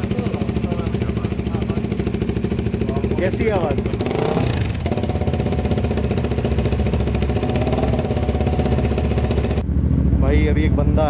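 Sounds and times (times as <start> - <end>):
motorcycle engine idling: 0.0 - 11.0.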